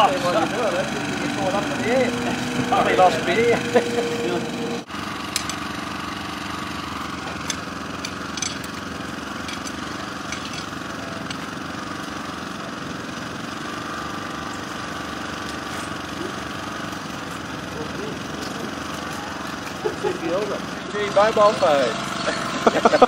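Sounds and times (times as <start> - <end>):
small petrol engine running: 0.0 - 23.0.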